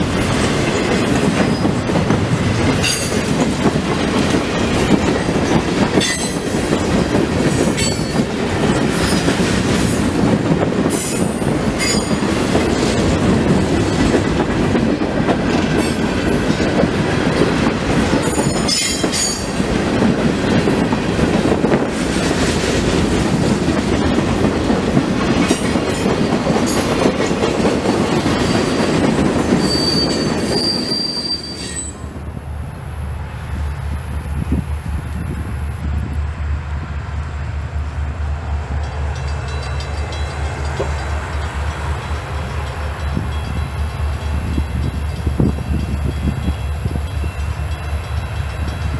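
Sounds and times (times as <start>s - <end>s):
rail-joint clicks: 0.0s - 32.1s, 38.4s - 48.9s
train wheels rumbling on rails: 0.0s - 48.9s
high wheel squeals: 29.6s - 32.0s.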